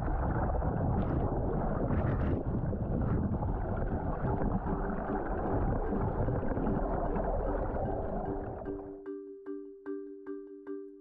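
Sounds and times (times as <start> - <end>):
wind on microphone: 0.0 - 8.7
water rushing: 0.0 - 8.9.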